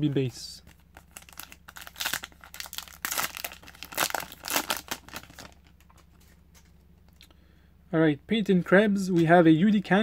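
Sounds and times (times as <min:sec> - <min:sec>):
foil wrapper crinkling and tearing: 0:00.7 - 0:06.0.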